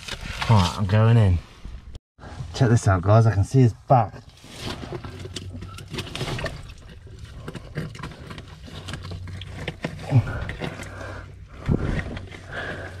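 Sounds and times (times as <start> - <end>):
hand scraping in wet rock crevice: 4.3 - 13.0.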